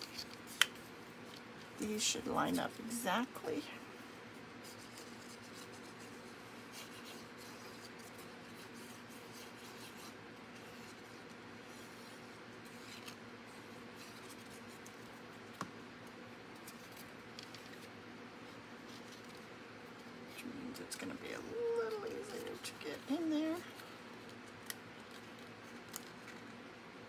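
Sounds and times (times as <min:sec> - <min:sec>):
steady low hum: 0:00.0 - 0:27.0
glue applicator scratching on card: 0:04.6 - 0:15.2.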